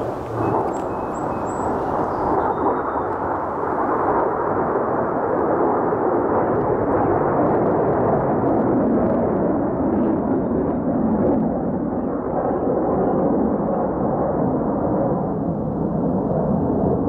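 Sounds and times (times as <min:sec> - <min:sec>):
aircraft engines flying overhead: 0:00.0 - 0:17.0.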